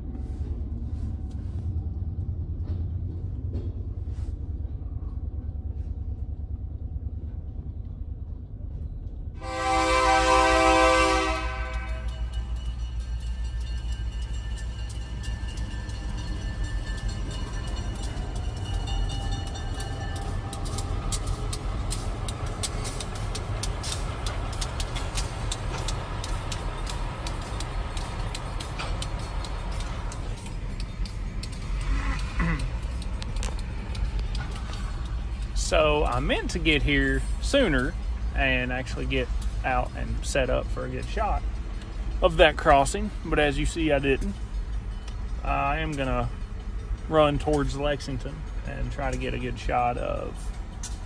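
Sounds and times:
freight train rumble: 0.0 - 51.0
wheels clicking on rails: 0.0 - 51.0
locomotive air horn blast: 9.4 - 12.3.

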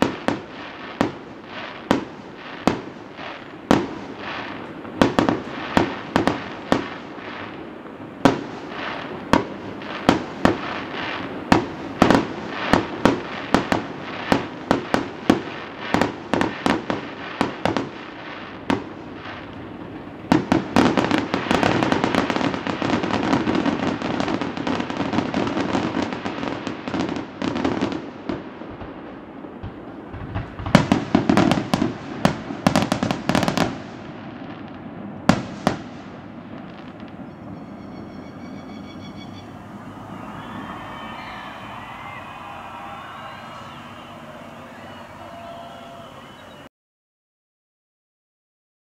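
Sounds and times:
fireworks pops: 0.0 - 26.2, 29.6 - 34.0
fireworks bangs: 0.0 - 46.7.

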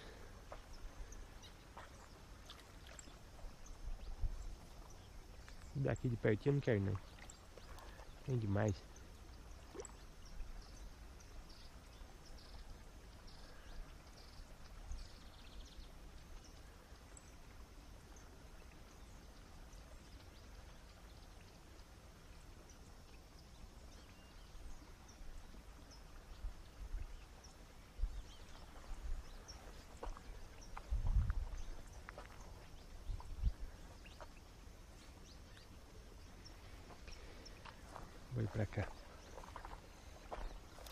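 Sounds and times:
dull low thumps: 30.8 - 31.8.

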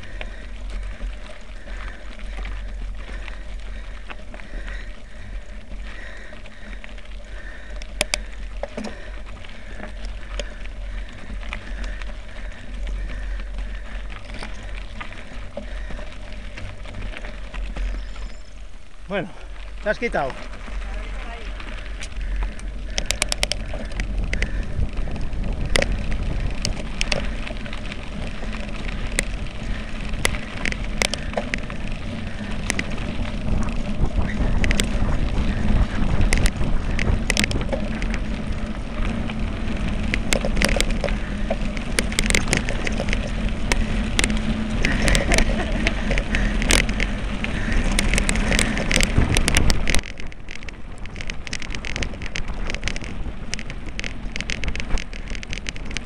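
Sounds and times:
bike clicking and rattling: 0.0 - 56.0
bike tyres rumbling on gravel: 0.0 - 56.0
wind on microphone: 20.9 - 56.0.

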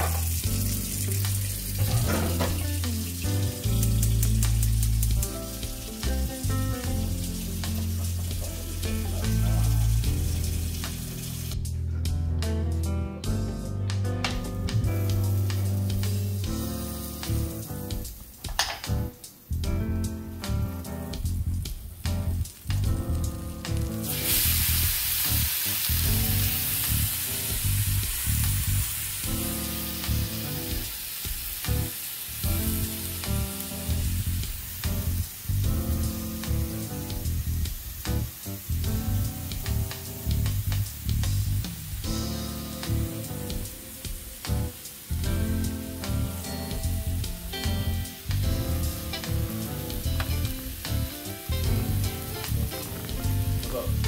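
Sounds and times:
steak sizzling on a griddle: 0.0 - 11.6, 14.8 - 54.0
background music: 0.0 - 54.0.

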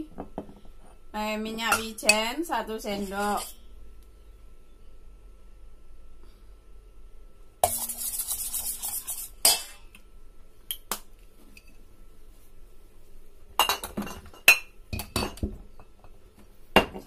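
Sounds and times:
metal spoon scraping steel bowl: 3.0 - 3.6, 7.6 - 9.7.

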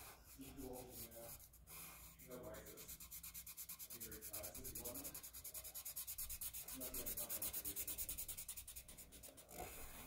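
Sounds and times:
marker rubbing on paper: 0.0 - 10.0.

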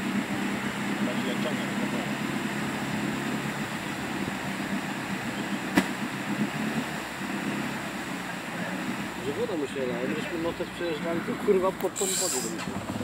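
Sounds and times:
off-road vehicle engine running: 0.0 - 13.0.

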